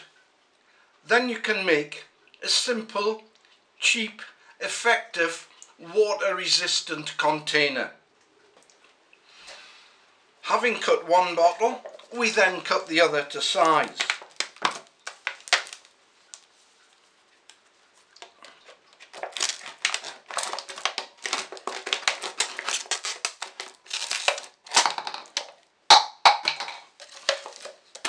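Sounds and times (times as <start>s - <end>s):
plastic crinkling: 11.7s - 25.7s, 26.4s - 28.0s
shears cutting plastic bottle: 19.0s - 25.5s, 27.0s - 28.0s.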